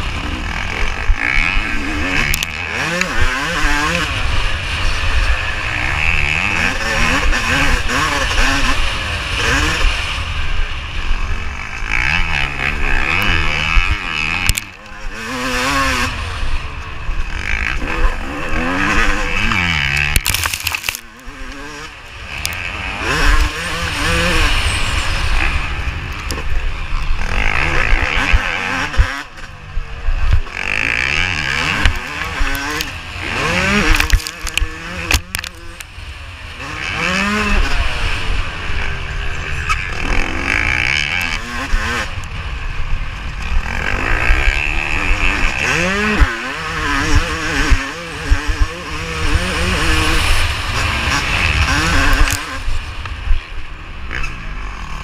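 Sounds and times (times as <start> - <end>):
motocross engine revving: 0.0 - 55.0.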